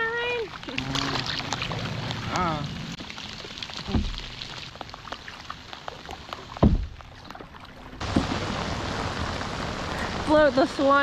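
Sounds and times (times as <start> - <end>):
heavy rain hissing on river: 0.0 - 11.0
raindrops ticking on hull: 0.0 - 11.0
paddle thumps: 3.8 - 4.5, 6.5 - 8.5.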